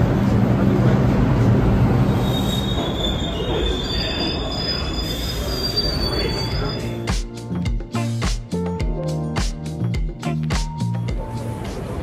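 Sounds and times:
subway train rumble: 0:00.0 - 0:07.6, 0:10.8 - 0:12.0
steel wheel squeal: 0:02.2 - 0:07.1.

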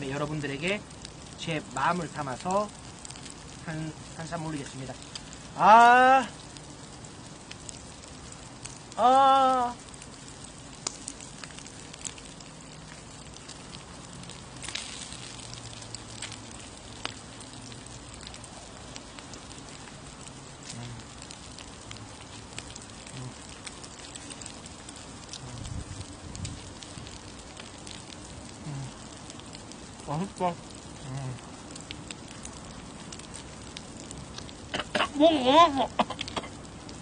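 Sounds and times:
meat sizzling on grill: 0:00.0 - 0:37.0
man's vocal exclamation: 0:05.6 - 0:06.4.

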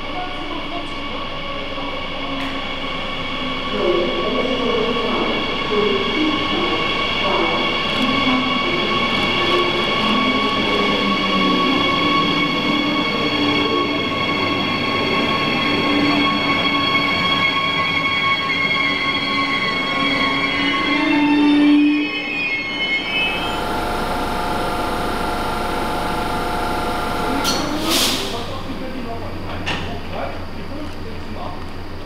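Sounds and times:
train pulling into station: 0:00.0 - 0:32.0
high-pitched whine: 0:02.6 - 0:30.3.

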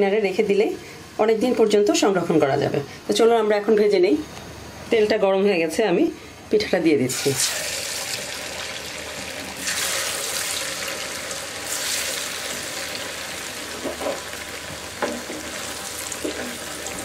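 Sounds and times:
oil sizzling and bubbling: 0:07.1 - 0:17.0.

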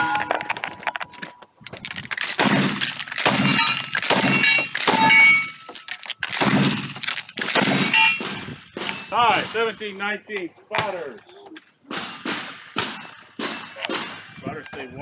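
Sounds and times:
steel plates clanging: 0:01.8 - 0:10.1
shotgun blasts: 0:02.2 - 0:05.4, 0:06.3 - 0:09.9, 0:11.9 - 0:14.4.

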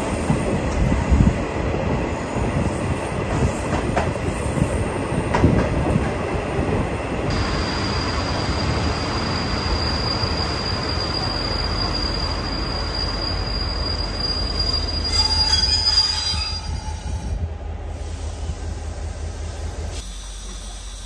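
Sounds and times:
train rolling rumble: 0:00.0 - 0:21.0
high-pitched brake squeal: 0:09.2 - 0:17.3.

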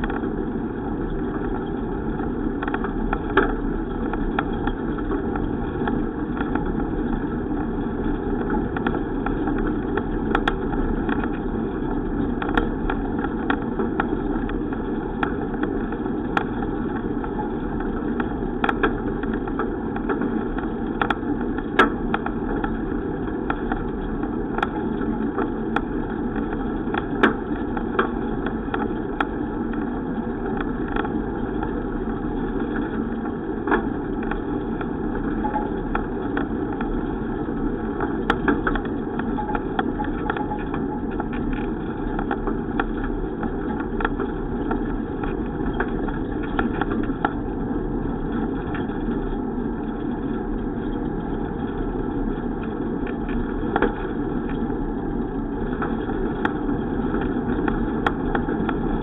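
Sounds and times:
bicycle clicks and rattles: 0:00.0 - 0:59.0
road and wind noise: 0:00.0 - 0:59.0.

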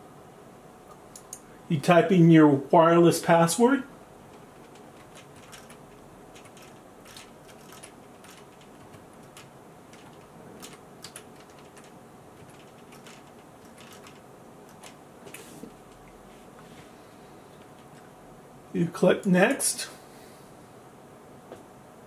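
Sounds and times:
computer keyboard typing: 0:04.2 - 0:16.1.

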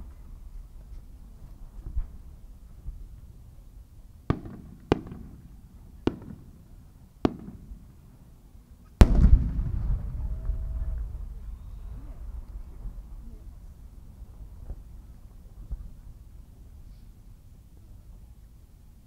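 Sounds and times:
firework cracks: 0:04.3 - 0:06.6, 0:07.2 - 0:07.9, 0:08.9 - 0:11.4
aerial shell boom with echo: 0:09.0 - 0:11.8.

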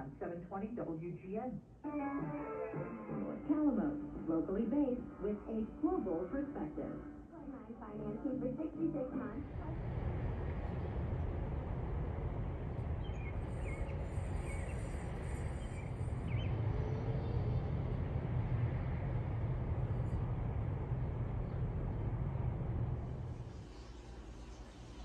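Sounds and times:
low rumble: 0:03.2 - 0:25.0
faint bird chirps: 0:13.0 - 0:17.6.

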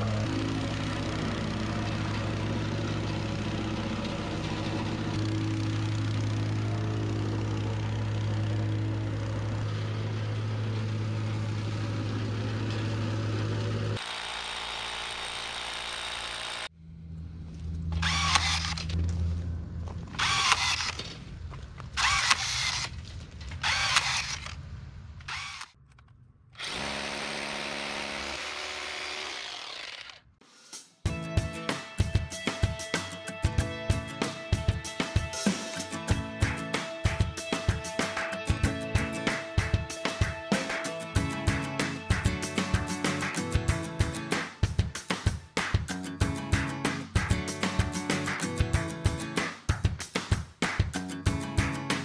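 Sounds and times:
plate compactor engine running: 0:00.0 - 0:16.8, 0:17.7 - 0:19.2, 0:26.6 - 0:30.2
power drill running: 0:13.4 - 0:16.7, 0:18.0 - 0:19.0, 0:20.2 - 0:21.0, 0:22.0 - 0:22.9, 0:23.6 - 0:24.6, 0:25.2 - 0:25.8, 0:26.6 - 0:30.3
cordless drill bursts: 0:14.0 - 0:16.7, 0:18.0 - 0:19.0, 0:20.2 - 0:21.0, 0:22.0 - 0:22.9, 0:23.6 - 0:24.5, 0:25.3 - 0:25.8, 0:26.6 - 0:30.2.

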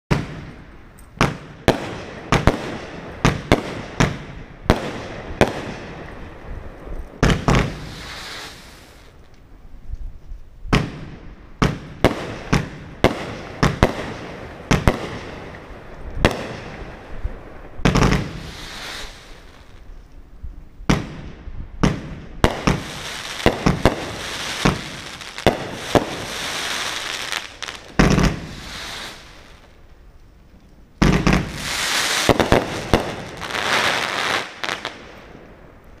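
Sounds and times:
firework sharp bangs: 0:00.1 - 0:06.2, 0:10.7 - 0:17.1, 0:20.9 - 0:29.8, 0:31.0 - 0:35.4
firework hiss: 0:07.4 - 0:09.2, 0:17.9 - 0:19.8, 0:22.5 - 0:29.8, 0:31.2 - 0:34.9.

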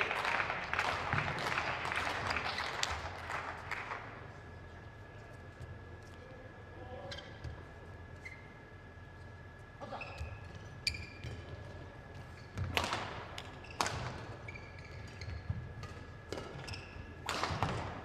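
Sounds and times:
shoes squeaking on court floor: 0:07.1 - 0:12.8, 0:13.4 - 0:17.2.

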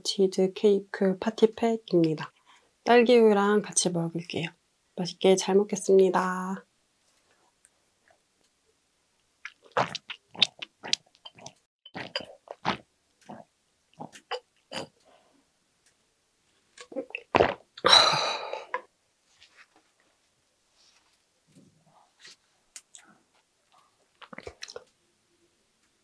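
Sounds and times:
gulping and swallowing: 0:09.4 - 0:14.9, 0:24.2 - 0:24.9.

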